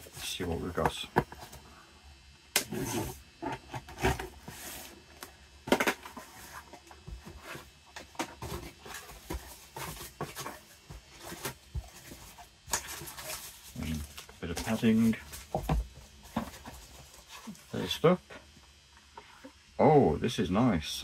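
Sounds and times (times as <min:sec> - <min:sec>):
box and packing rustling: 0:02.7 - 0:17.8.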